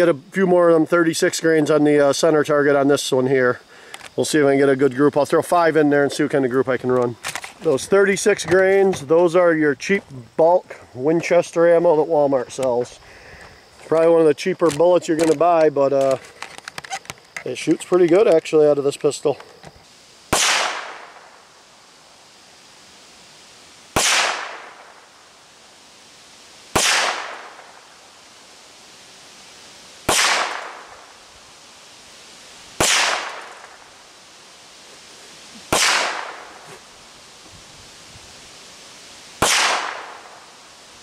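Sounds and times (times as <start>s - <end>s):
pistol shots with echo: 20.3s - 21.2s, 24.0s - 24.8s, 26.8s - 27.7s, 30.1s - 30.9s, 32.8s - 33.6s, 35.7s - 36.4s, 39.4s - 40.3s.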